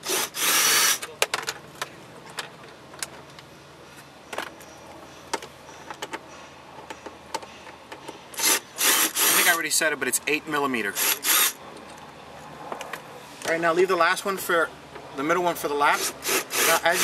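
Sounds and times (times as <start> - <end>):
cordless drill whirring: 0.0 - 1.0, 8.4 - 9.6, 11.0 - 11.6, 16.0 - 17.0.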